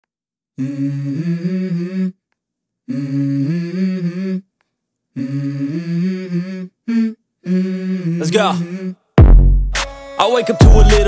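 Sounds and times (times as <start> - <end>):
person humming a melody: 0.6 - 2.2, 2.9 - 4.5, 5.2 - 9.1, 10.5 - 11.0.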